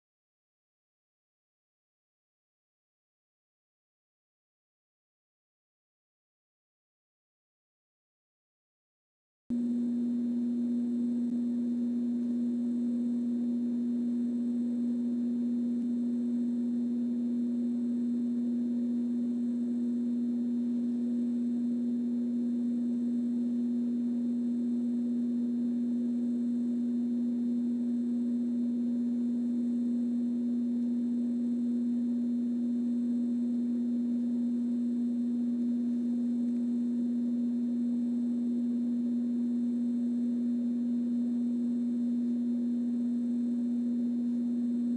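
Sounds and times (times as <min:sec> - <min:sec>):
steady electrical hum: 0:09.5 - 0:44.9.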